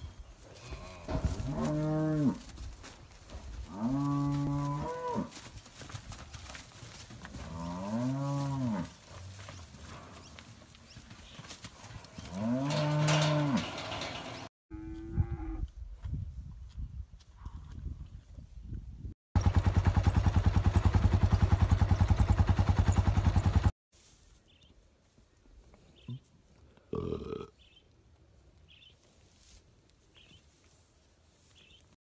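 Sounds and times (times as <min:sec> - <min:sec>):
cattle mooing: 0:12.3 - 0:14.1.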